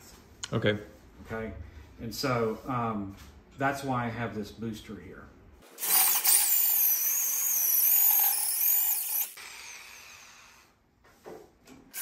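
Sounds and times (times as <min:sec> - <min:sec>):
electric drill cutting into steel: 0:05.8 - 0:10.6.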